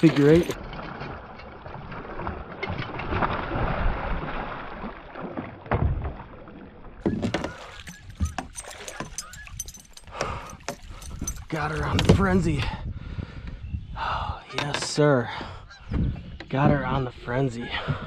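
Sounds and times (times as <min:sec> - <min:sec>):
fish thrashing and splashing: 0:06.5 - 0:11.9
sharp clicks and knocks: 0:07.0 - 0:12.3.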